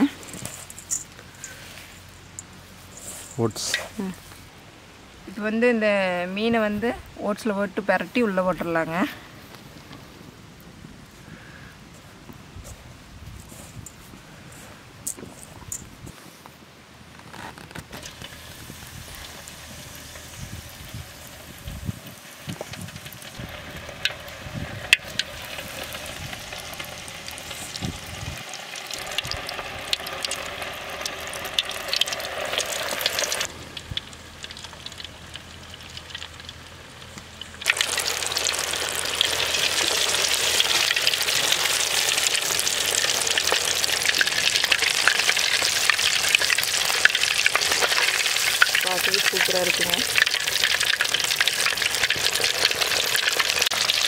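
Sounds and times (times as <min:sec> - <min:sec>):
fish deep-frying in hot oil: 0:17.8 - 0:54.0.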